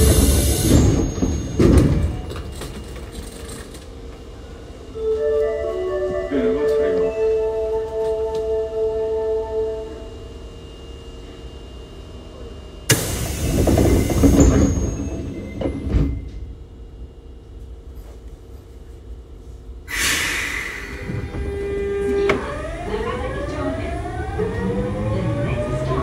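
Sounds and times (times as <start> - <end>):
train doors sliding shut: 0.0 - 3.7, 12.9 - 16.5, 19.9 - 22.6
traction motors whining: 12.9 - 16.5, 19.9 - 26.0
air hiss: 19.9 - 21.2.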